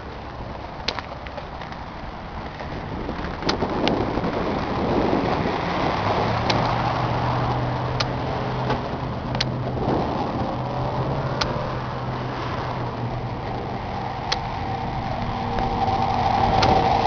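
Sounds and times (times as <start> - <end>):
tractor diesel engine running: 0.0 - 17.0
sharp clicks: 6.4 - 6.8, 7.5 - 9.6.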